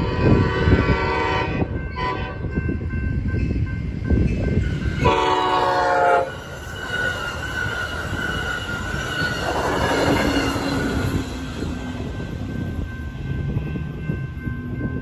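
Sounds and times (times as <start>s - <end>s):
train horn blast: 0.0s - 2.6s, 5.0s - 6.4s
train cars rumbling past: 0.0s - 15.0s
crossing bell ringing: 0.9s - 15.0s
locomotive engine drone: 1.6s - 15.0s.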